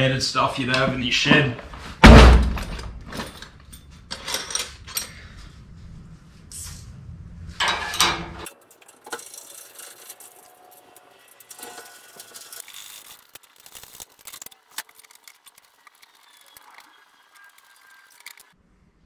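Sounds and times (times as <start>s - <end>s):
tools and metal parts clinking: 2.5s - 5.2s, 7.6s - 16.5s.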